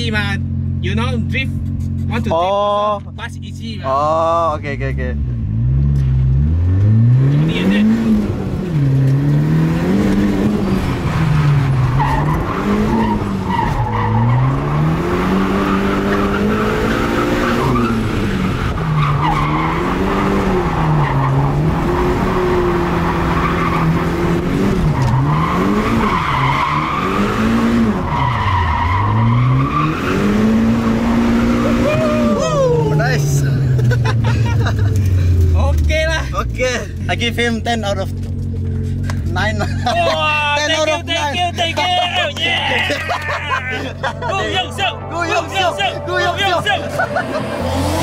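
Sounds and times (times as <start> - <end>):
car engine revving: 4.4 - 48.0
tyres squealing and skidding: 7.3 - 33.5, 39.3 - 48.0.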